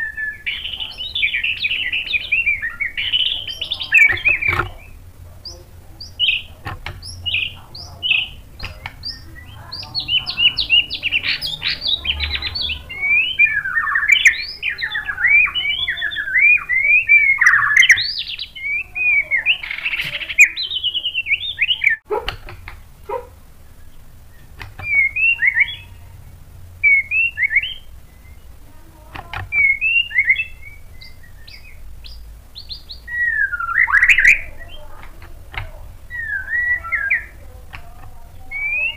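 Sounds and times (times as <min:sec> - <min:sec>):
bird singing whistled notes: 0:00.0 - 0:22.2, 0:23.6 - 0:38.9
sharp clicks: 0:01.6 - 0:12.8, 0:24.2 - 0:25.2.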